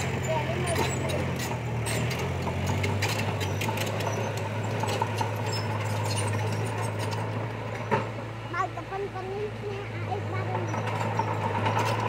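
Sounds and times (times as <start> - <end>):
sharp clicks and clanks: 0.0 - 8.1
heavy machine engine running: 0.0 - 12.0.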